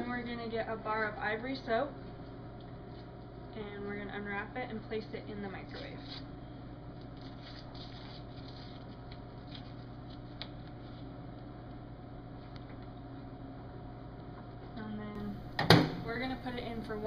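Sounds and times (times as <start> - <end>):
steady low hum: 0.0 - 17.0
paper wrapper crinkling: 7.0 - 11.1.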